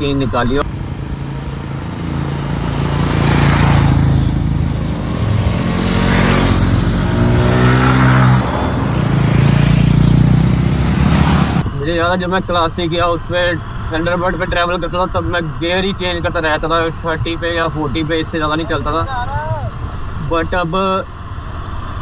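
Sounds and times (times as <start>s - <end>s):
motorcycles riding past: 0.6s - 11.6s.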